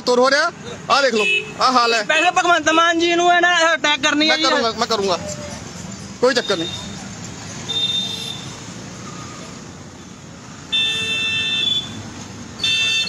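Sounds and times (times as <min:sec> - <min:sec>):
steady traffic noise: 0:00.0 - 0:13.0
car horn honking: 0:01.0 - 0:03.0, 0:07.7 - 0:08.6, 0:10.7 - 0:13.0.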